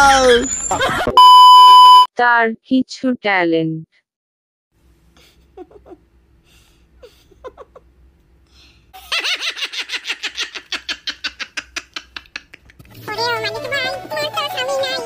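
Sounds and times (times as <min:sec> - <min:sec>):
man laughing: 0:05.2 - 0:06.0, 0:07.0 - 0:07.9, 0:09.0 - 0:12.9.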